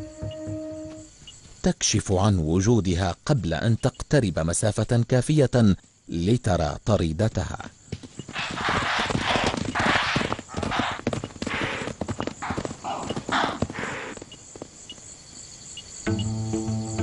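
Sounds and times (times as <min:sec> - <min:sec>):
hooves galloping: 0:07.9 - 0:15.1.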